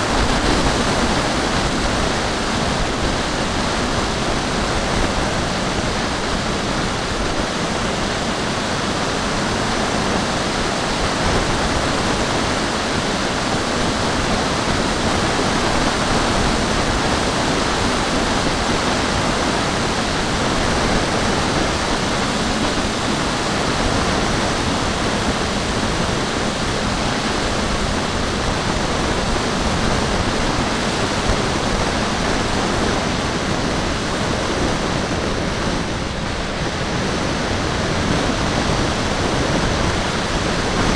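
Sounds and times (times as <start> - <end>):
wind buffeting microphone: 0.0 - 40.9.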